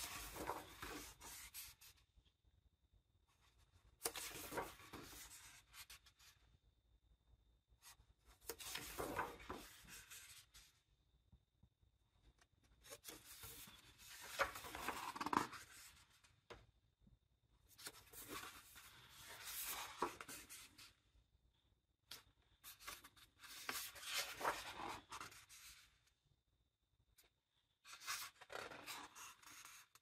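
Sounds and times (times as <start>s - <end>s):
book pages turning: 0.0s - 1.9s, 4.0s - 6.1s, 8.4s - 10.5s, 12.8s - 16.1s, 17.7s - 20.9s, 22.1s - 25.8s, 27.9s - 30.0s.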